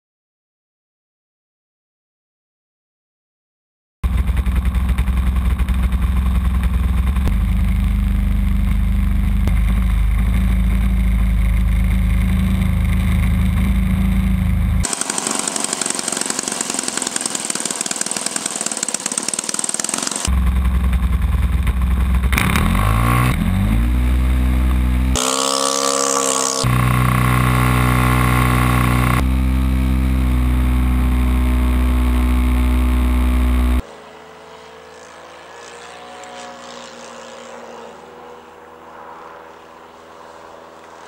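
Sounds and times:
model plane engine at full throttle: 0:04.0 - 0:23.1, 0:24.0 - 0:41.0
faint drone of plane overhead: 0:09.8 - 0:22.4, 0:33.8 - 0:41.0.

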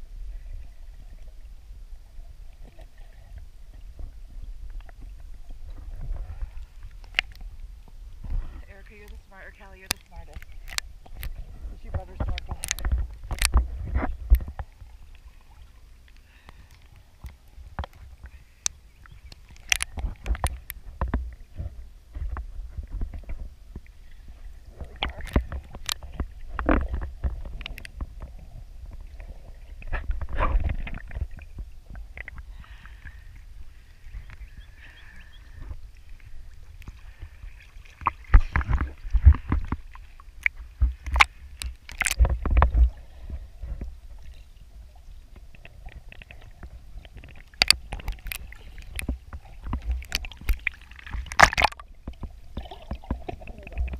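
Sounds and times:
low muffled rumble: 0:00.0 - 0:19.3
water sloshing and gurgling: 0:00.0 - 0:53.9
sharp clicks and knocks: 0:47.1 - 0:52.3.

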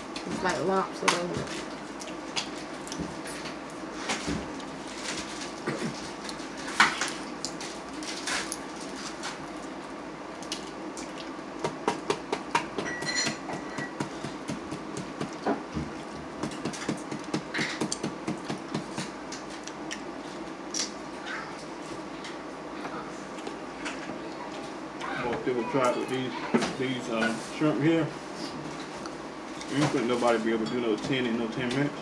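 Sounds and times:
crab shells cracking: 0:04.6 - 0:12.5.

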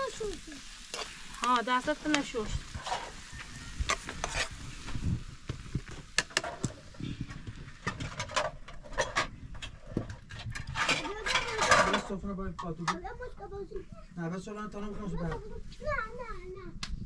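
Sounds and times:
metal utensil scraping a pan: 0:00.8 - 0:01.4, 0:02.4 - 0:04.9, 0:07.8 - 0:12.8.

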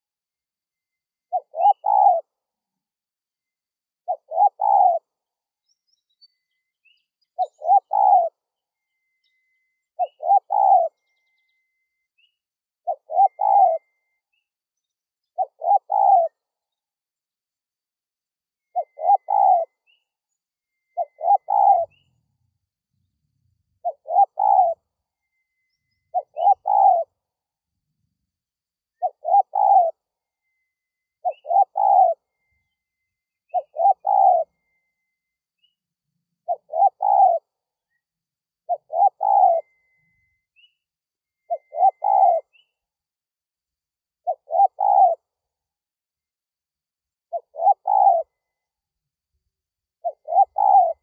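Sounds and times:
dove cooing: 0:01.3 - 0:02.4, 0:04.1 - 0:05.1, 0:07.4 - 0:08.4, 0:10.0 - 0:11.1, 0:12.8 - 0:14.1, 0:15.4 - 0:16.4, 0:18.7 - 0:19.9, 0:20.9 - 0:22.0, 0:23.8 - 0:24.8, 0:26.1 - 0:27.2, 0:29.0 - 0:30.6, 0:31.2 - 0:32.6, 0:33.5 - 0:35.0, 0:36.4 - 0:37.6, 0:38.7 - 0:40.4, 0:41.4 - 0:42.6, 0:44.2 - 0:45.3, 0:47.3 - 0:48.4, 0:50.0 - 0:51.0.

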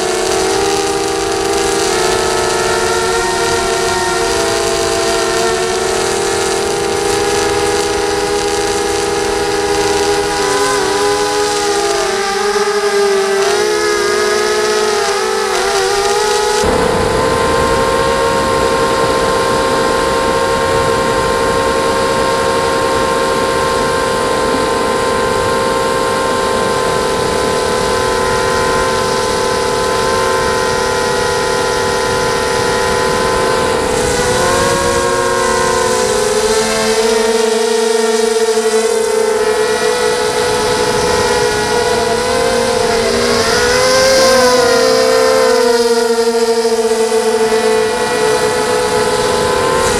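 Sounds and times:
drone motors whining: 0:00.0 - 0:49.9.

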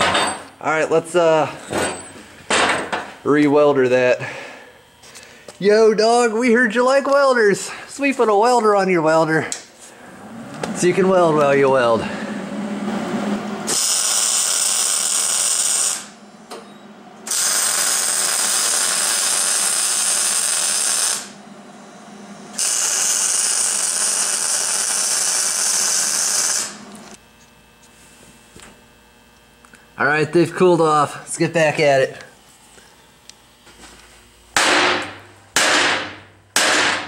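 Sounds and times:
welding arc crackling: 0:13.7 - 0:16.2, 0:17.2 - 0:21.4, 0:22.0 - 0:27.8.

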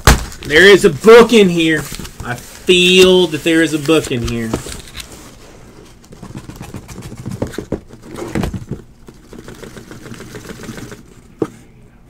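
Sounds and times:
cardboard rubbing and shuffling: 0:01.0 - 0:11.7
cardboard boxes knocking: 0:06.2 - 0:11.6.

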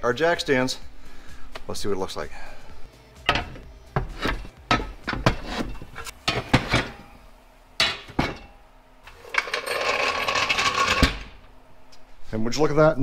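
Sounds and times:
steel jack stands clanking: 0:03.2 - 0:07.0.

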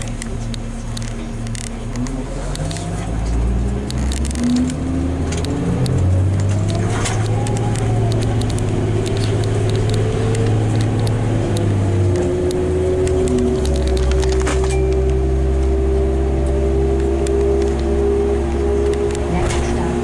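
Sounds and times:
bus body clicks and rattles: 0:00.0 - 0:03.2, 0:03.8 - 0:15.2, 0:18.8 - 0:20.0
bus engine hum with whining: 0:00.0 - 0:20.0.

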